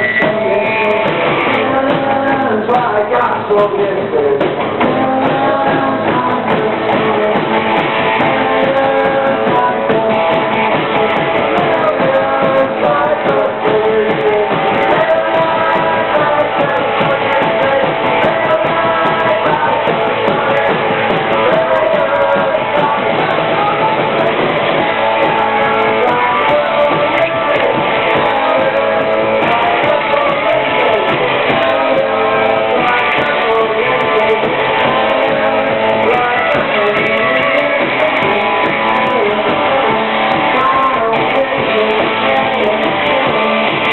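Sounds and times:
electric guitar: 0.0 - 43.9
live rock band playing: 0.0 - 43.9.

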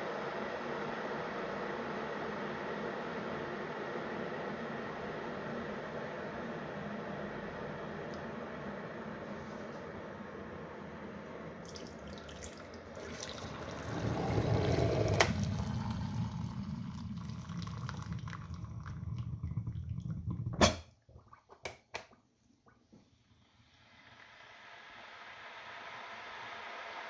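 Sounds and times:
water pouring into a mug: 11.6 - 20.6
hot water dispenser hissing: 11.7 - 19.4.

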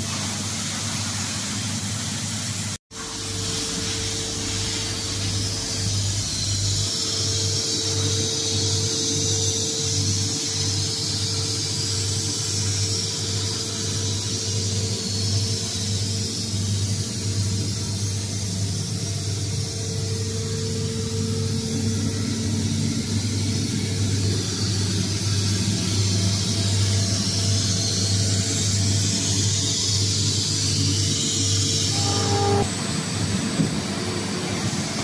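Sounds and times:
mid-pitched machine tone: 3.0 - 9.7, 31.0 - 32.8
machinery low hum: 3.0 - 10.3, 18.9 - 33.2.

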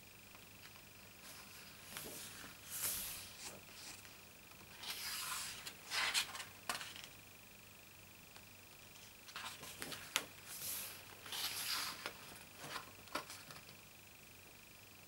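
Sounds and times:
book pages turning: 1.2 - 7.1, 9.0 - 13.7.

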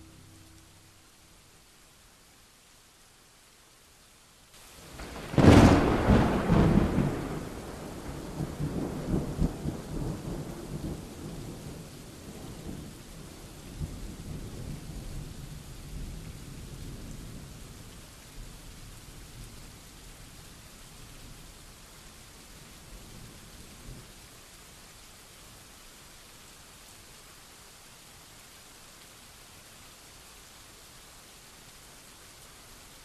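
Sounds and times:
rain hiss: 0.0 - 33.0
thunderclap rolling: 4.9 - 9.8.

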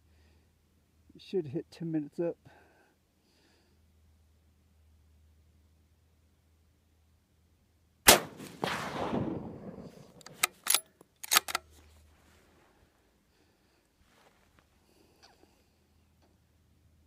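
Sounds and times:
rifle shot with rolling echo: 8.1 - 10.8
rifle bolt metallic clicks: 10.1 - 11.7.

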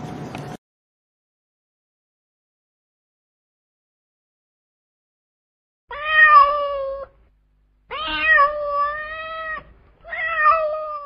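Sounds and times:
cat meowing: 5.9 - 7.2, 7.9 - 11.0.

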